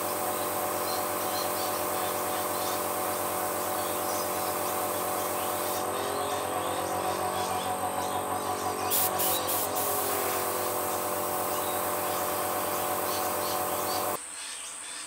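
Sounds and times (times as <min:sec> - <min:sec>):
airbrush spraying hiss: 0:00.0 - 0:06.1, 0:08.7 - 0:14.2
airbrush compressor humming: 0:00.0 - 0:14.2.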